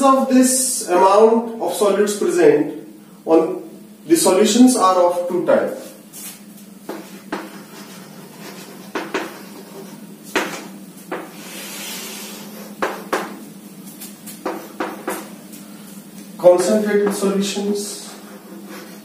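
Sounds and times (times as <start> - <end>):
chalk scraping on blackboard: 6.2 - 10.5, 11.1 - 13.2, 14.4 - 15.2, 17.9 - 19.0
chalk tapping on blackboard: 6.8 - 13.4, 14.3 - 15.3, 16.6 - 17.3.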